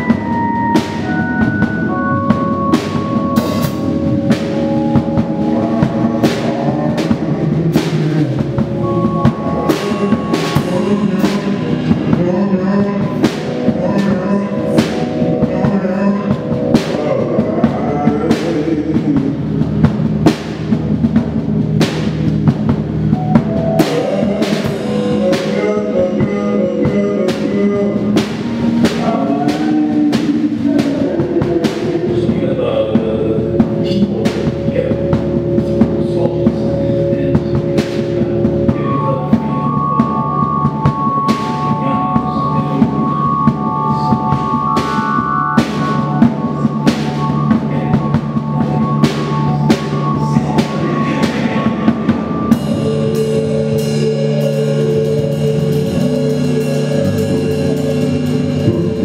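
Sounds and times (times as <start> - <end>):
drum kit and cymbal hits: 0.0 - 59.0
held keyboard and synth notes: 0.0 - 59.0.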